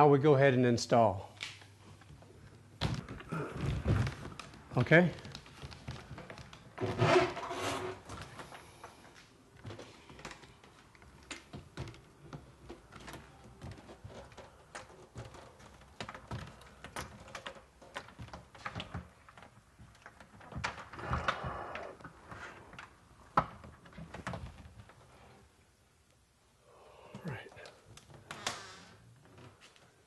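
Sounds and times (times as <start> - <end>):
wooden panels knocking and clicking: 10.2 - 21.8.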